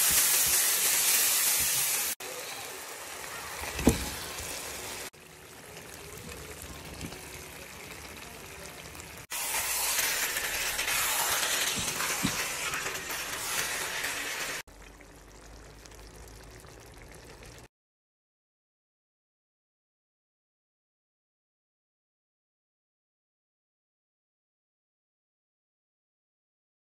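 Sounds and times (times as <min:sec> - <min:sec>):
curry sizzling and bubbling: 0:00.0 - 0:17.7.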